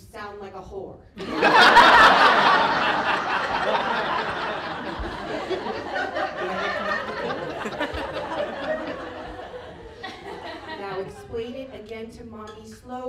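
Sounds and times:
audience laughing hard: 1.2 - 11.3.

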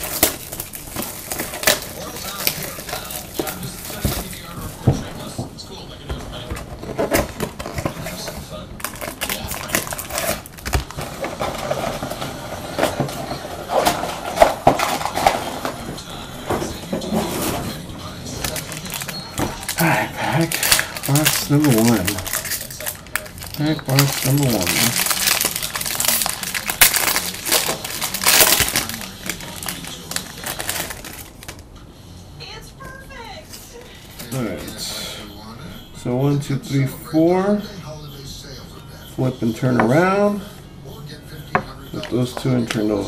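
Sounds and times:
packaging rustling and clicking: 0.0 - 4.5, 6.5 - 15.9, 18.4 - 31.6
plastic wrapper crackling: 0.0 - 4.5, 7.1 - 13.0, 18.4 - 31.6.

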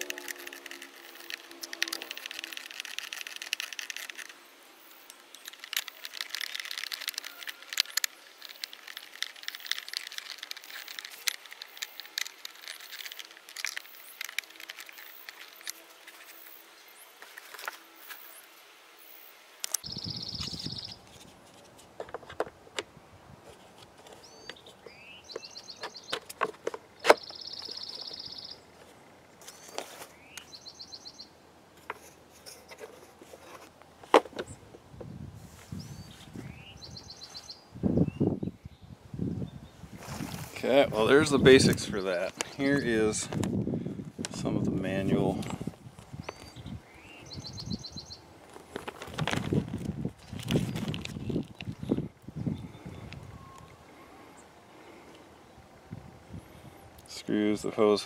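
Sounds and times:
plastic parts clicking and rattling: 0.0 - 4.4, 5.0 - 16.4, 25.4 - 28.1, 48.5 - 51.8
bird trilling: 0.0 - 16.6, 19.8 - 21.0, 27.0 - 28.7.

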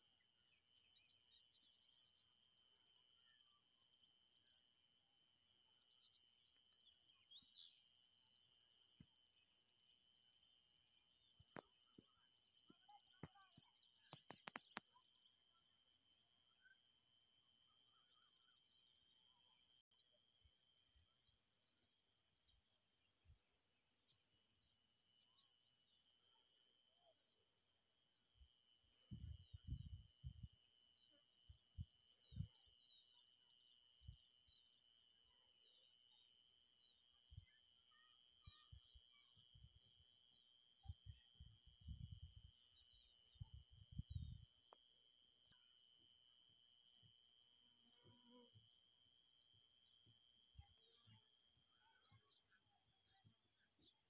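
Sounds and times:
bird chirps: 11.0 - 15.7, 29.0 - 40.0.

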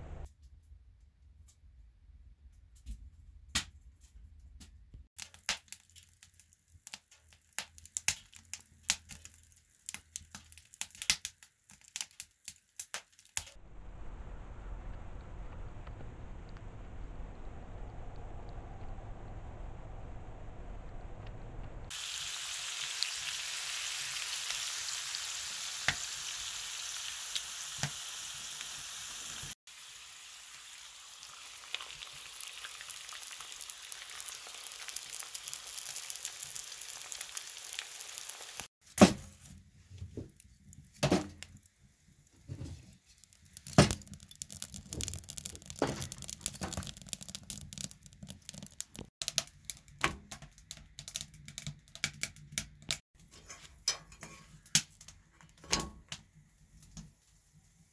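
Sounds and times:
food sizzling in a skillet: 21.9 - 38.7.

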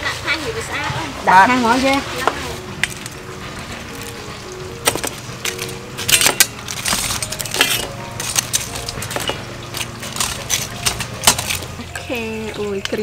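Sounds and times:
fried chicken clinking on metal plate: 4.9 - 11.7.

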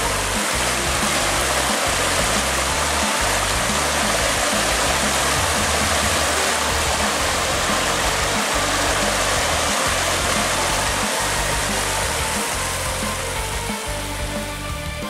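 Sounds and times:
stream rushing over rocks: 0.0 - 15.0.

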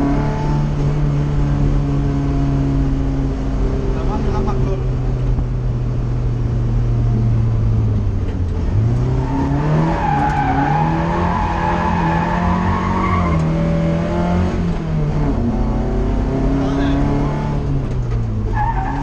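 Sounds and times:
car engine revving hard: 8.6 - 17.8.

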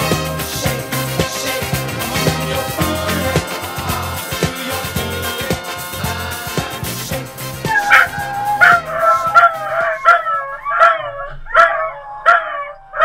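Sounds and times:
upbeat background music: 0.0 - 10.2
dog baying: 7.6 - 13.0.

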